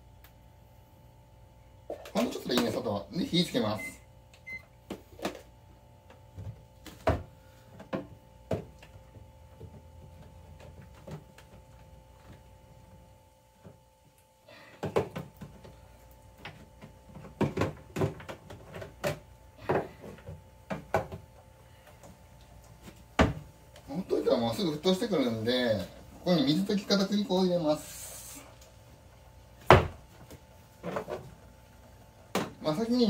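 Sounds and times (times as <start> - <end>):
faint steady hum: 0.0 - 33.0
kitchen knocks and clatter: 17.2 - 21.2.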